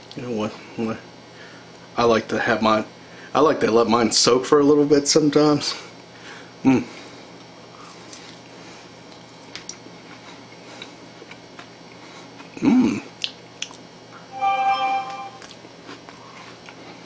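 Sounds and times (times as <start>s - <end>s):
person chewing quietly: 7.3s - 13.9s, 15.4s - 17.0s
person humming mmm: 12.6s - 13.0s
wet mouth clicks: 13.2s - 13.8s.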